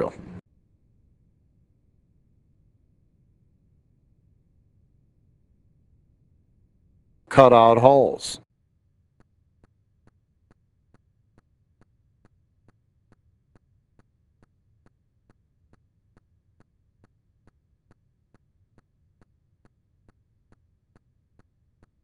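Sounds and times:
low hum: 0.0 - 8.2.

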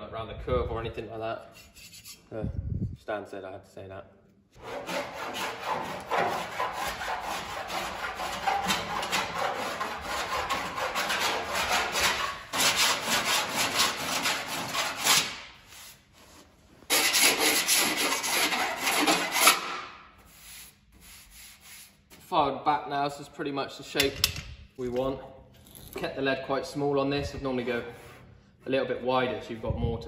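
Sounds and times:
file rasping on metal: 1.5 - 2.2, 4.6 - 15.4, 16.9 - 19.8.

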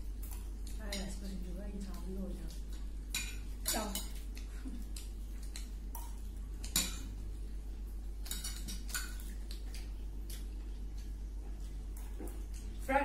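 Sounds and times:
steady low hum: 0.0 - 13.0
cutlery clinking on a dish: 6.6 - 7.1, 8.2 - 9.3.

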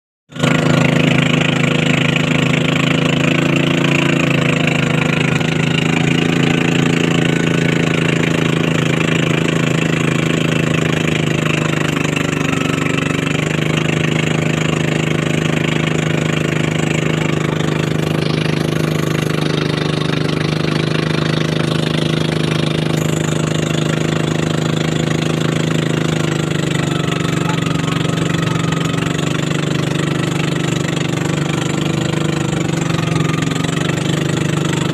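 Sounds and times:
motorboat engine running: 0.3 - 34.9
water rushing along hull: 0.3 - 34.9.

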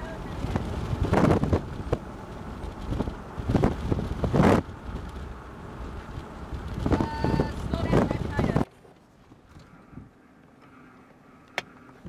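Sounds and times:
wind buffeting microphone: 0.0 - 8.7.

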